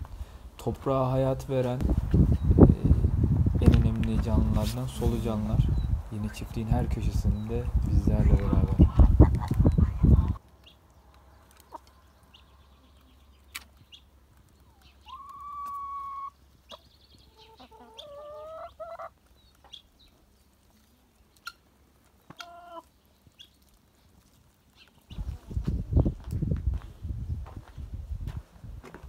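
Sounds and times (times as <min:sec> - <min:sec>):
hens calling: 0:13.9 - 0:20.0, 0:21.4 - 0:23.8.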